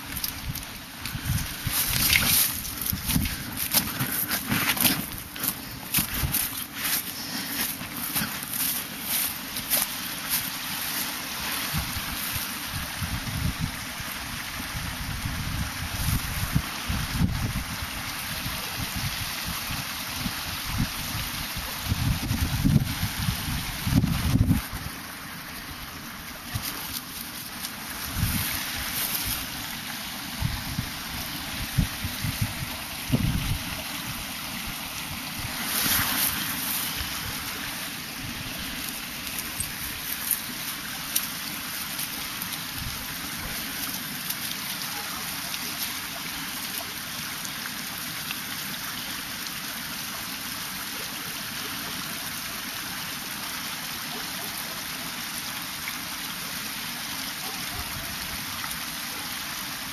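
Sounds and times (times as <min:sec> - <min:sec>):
short rustle: 0:00.0 - 0:12.6, 0:35.5 - 0:42.6
stream running over rocks: 0:00.0 - 0:59.9.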